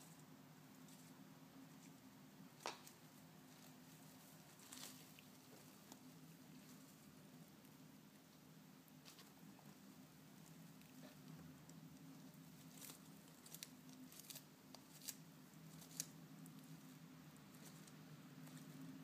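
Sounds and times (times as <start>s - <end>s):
low steady hum: 0.0s - 19.0s
tortoise crunching lettuce: 10.4s - 19.0s.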